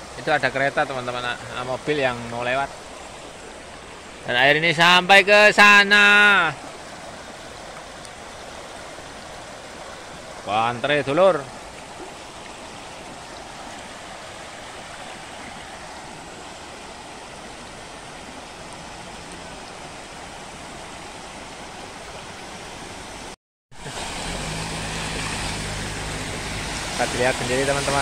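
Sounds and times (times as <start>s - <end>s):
floodwater rushing: 0.0s - 28.0s
car engine humming: 23.8s - 28.0s.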